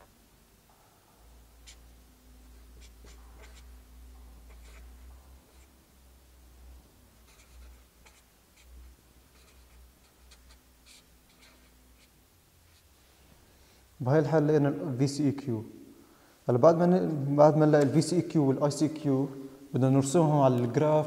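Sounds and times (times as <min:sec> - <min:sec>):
marker writing on paper: 0:01.6 - 0:03.8, 0:04.4 - 0:05.8, 0:07.2 - 0:12.9.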